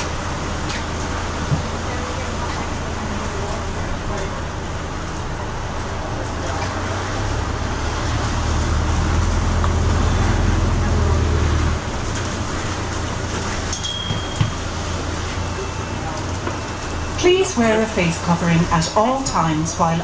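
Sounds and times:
bus drive hum: 0.0s - 20.0s
tyre noise on wet road: 0.0s - 20.0s.

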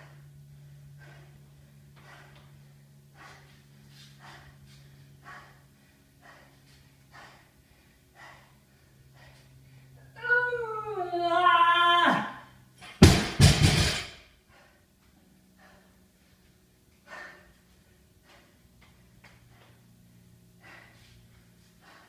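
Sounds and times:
person breathing hard: 0.0s - 10.2s, 14.4s - 22.0s
low hum: 0.0s - 22.0s
person crying out: 10.2s - 12.4s.

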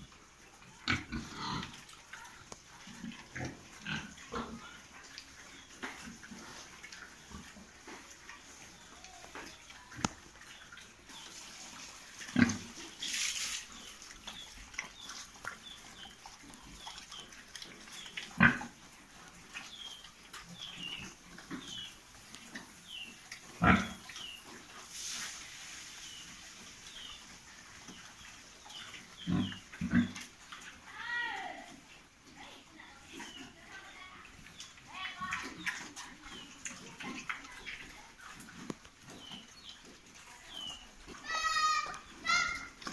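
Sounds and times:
pigs grunting: 0.7s - 1.9s, 2.8s - 4.9s, 12.2s - 12.8s, 14.9s - 18.9s, 23.5s - 24.1s, 29.2s - 30.3s.

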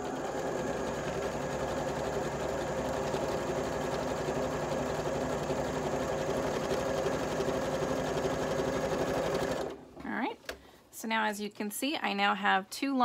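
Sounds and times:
sewing machine running: 0.0s - 9.8s.

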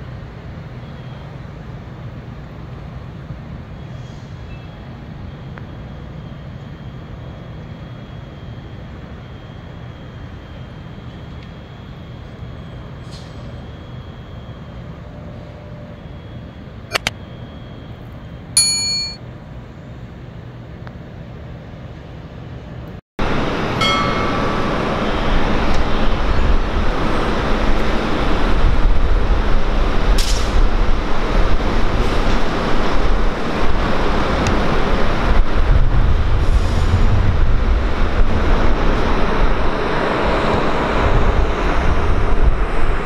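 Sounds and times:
quick clicks: 16.9s - 17.1s
ringing metallic ding: 18.6s - 19.2s, 23.8s - 24.9s.

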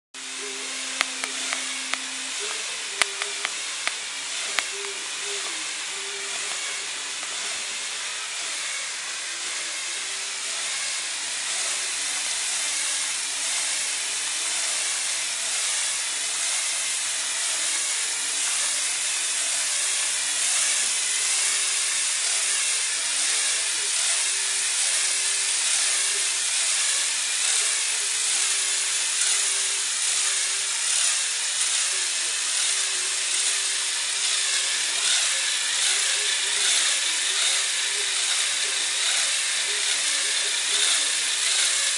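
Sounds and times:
small motors and gears whirring: 0.2s - 41.9s
sharp clicks: 0.9s - 5.6s.

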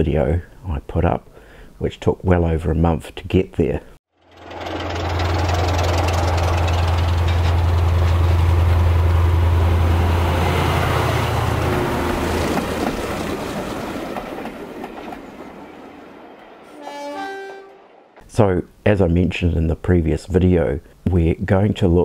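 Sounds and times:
model train rumbling past: 4.2s - 18.0s
model train horn: 16.7s - 18.0s.

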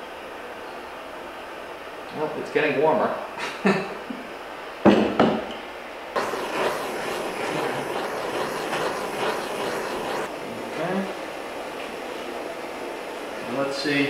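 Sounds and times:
blowtorch flame hissing: 6.2s - 11.2s.

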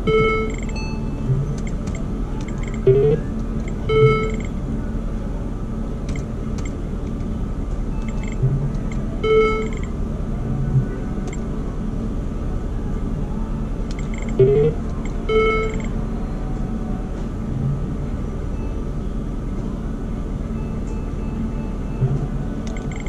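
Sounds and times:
slot machine electronic tones: 0.0s - 1.0s, 1.6s - 4.6s, 8.0s - 8.4s, 9.2s - 9.9s, 13.9s - 15.9s, 22.7s - 23.0s
pitched beeps: 0.0s - 4.5s, 7.9s - 9.9s, 13.9s - 15.9s, 20.6s - 23.0s
rising electronic tone: 14.1s - 14.8s.

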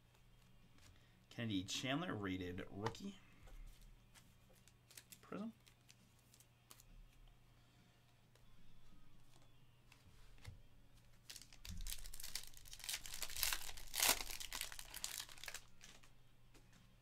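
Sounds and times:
plastic crinkling: 11.2s - 16.1s.

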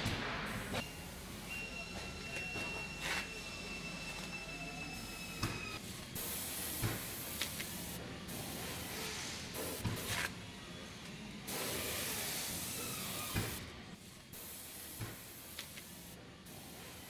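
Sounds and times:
spray gun hissing: 6.2s - 10.2s, 11.5s - 13.6s, 14.3s - 17.0s.

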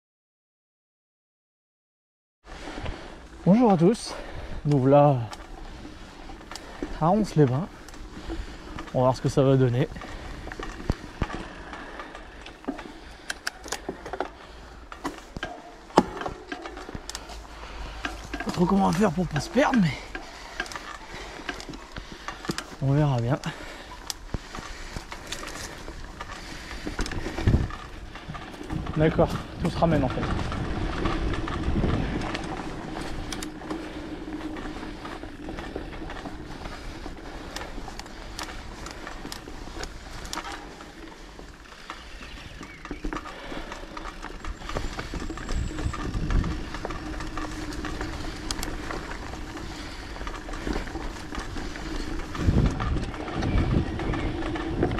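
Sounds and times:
bike clicks and rattles: 2.5s - 54.9s
low tire rumble: 2.6s - 54.9s
tyre and wind rush: 24.6s - 54.9s.

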